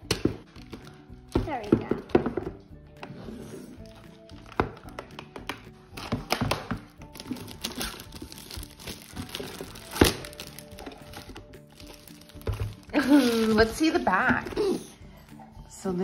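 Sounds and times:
background music: 0:00.0 - 0:16.0
plastic wrap crinkling and tearing: 0:06.0 - 0:14.0.

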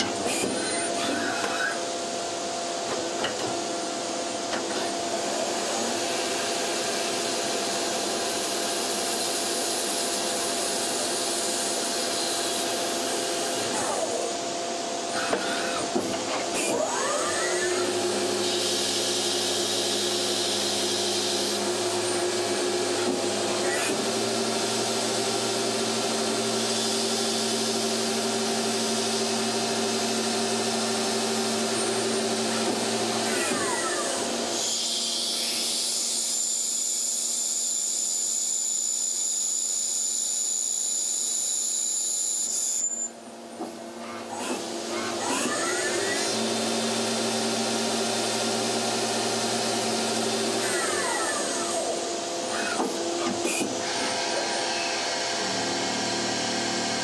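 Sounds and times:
lathe spindle and cutting whine: 0:03.6 - 0:43.2, 0:43.9 - 0:57.0
thin high drill whine: 0:04.7 - 0:57.0.

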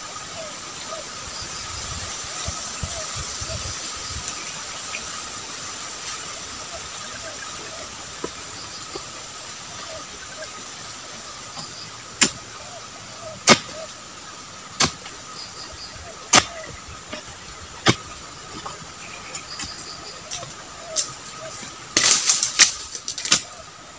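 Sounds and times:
steady hiss: 0:00.0 - 0:23.9
hand tool chopping wood: 0:11.6 - 0:12.4, 0:13.4 - 0:13.8, 0:14.8 - 0:15.1, 0:16.3 - 0:18.1.

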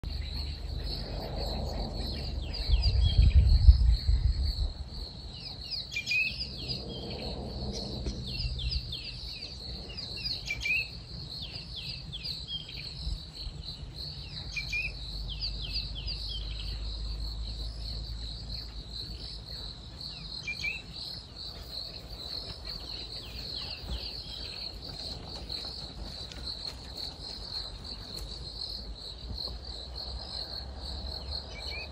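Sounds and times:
insects chirring: 0:00.0 - 0:31.9
bird chirps: 0:05.3 - 0:28.3.

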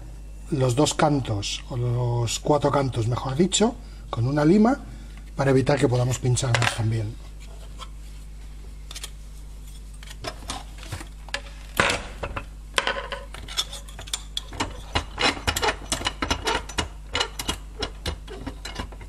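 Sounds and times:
metal clicks and clanks: 0:13.3 - 0:19.0.

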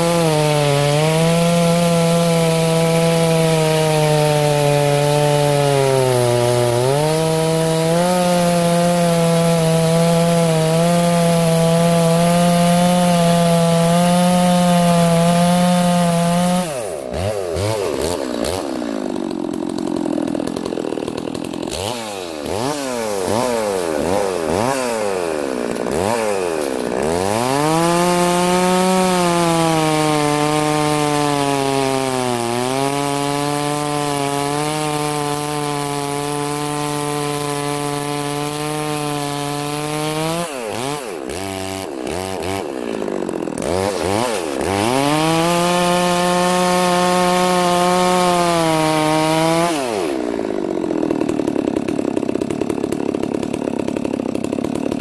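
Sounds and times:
chainsaw cutting log: 0:00.0 - 0:55.0
chainsaw engine revving: 0:00.0 - 0:55.0.

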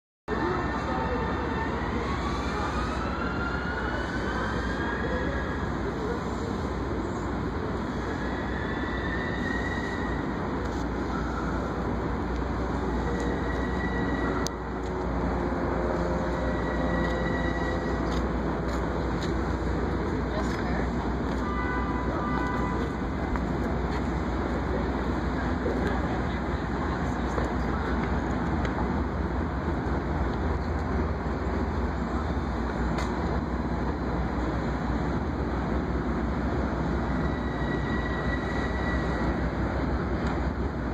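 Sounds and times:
train rumble: 0:00.3 - 0:40.9.

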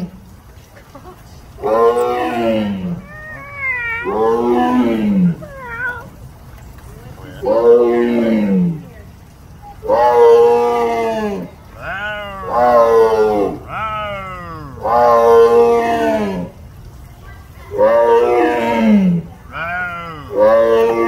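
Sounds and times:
tiger roaring: 0:01.6 - 0:06.1, 0:07.4 - 0:08.8, 0:09.9 - 0:16.5, 0:17.8 - 0:21.0.

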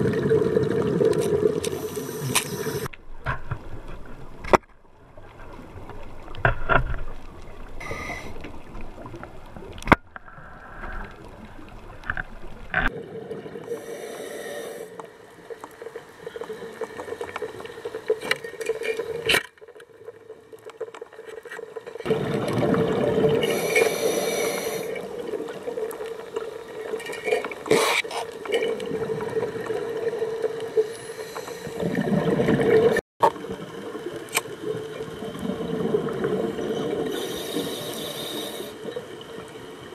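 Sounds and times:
exhaled bubbles: 0:00.0 - 0:02.9, 0:22.0 - 0:39.2
regulator breathing underwater: 0:07.8 - 0:08.4, 0:13.6 - 0:15.1, 0:23.4 - 0:25.2, 0:30.8 - 0:32.0, 0:37.0 - 0:38.9.

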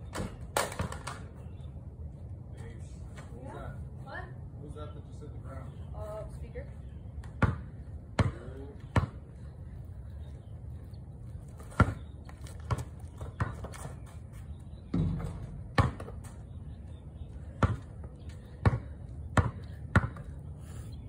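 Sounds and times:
basketball bouncing on concrete: 0:07.2 - 0:09.4, 0:11.5 - 0:14.0, 0:14.8 - 0:16.5, 0:17.3 - 0:20.4.

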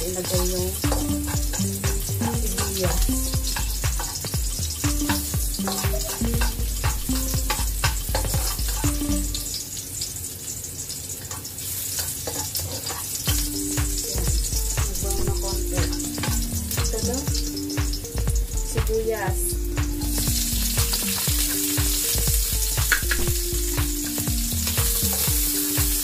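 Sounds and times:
background music with bass: 0:00.0 - 0:09.6, 0:13.3 - 0:26.0
spatula scraping wok: 0:00.0 - 0:09.6, 0:11.2 - 0:17.8, 0:24.0 - 0:26.0
garlic sizzling in hot oil: 0:00.0 - 0:26.0.

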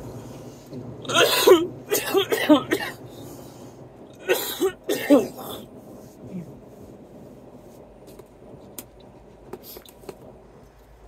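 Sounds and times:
man coughing: 0:01.1 - 0:03.1, 0:04.2 - 0:05.6.

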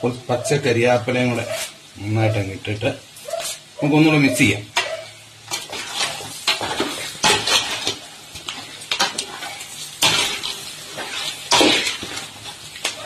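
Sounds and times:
food sizzling: 0:00.0 - 0:13.0
metal spoon scraping a pot: 0:04.8 - 0:08.0.

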